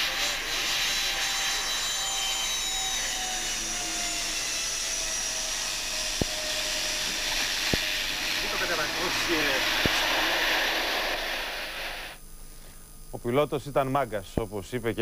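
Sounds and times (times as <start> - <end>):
turboprop engine whine: 0.0 - 13.1
steady rushing noise: 7.0 - 12.2.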